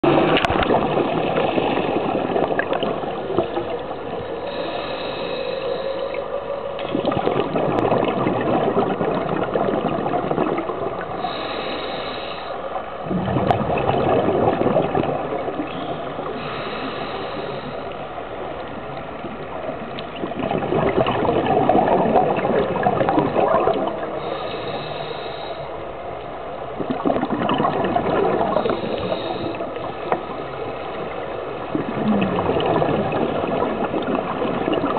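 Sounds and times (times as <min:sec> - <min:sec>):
exhaled bubbles rushing: 0:00.0 - 0:05.2, 0:06.0 - 0:11.4, 0:13.0 - 0:16.4, 0:18.6 - 0:24.4, 0:26.7 - 0:34.9
regulator inhale hiss: 0:03.5 - 0:06.3, 0:11.2 - 0:12.8, 0:15.8 - 0:18.2, 0:24.2 - 0:25.9, 0:28.6 - 0:30.6.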